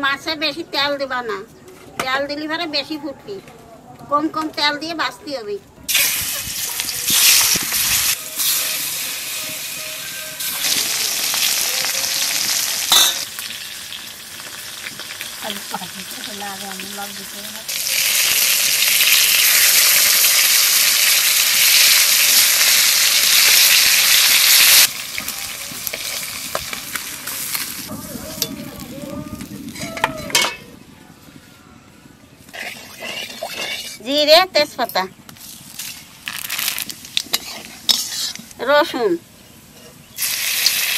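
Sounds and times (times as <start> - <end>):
fish sizzling in oil: 5.9 - 27.9, 35.4 - 38.6, 40.1 - 40.9
spatula stirring: 32.5 - 34.0, 37.2 - 38.6.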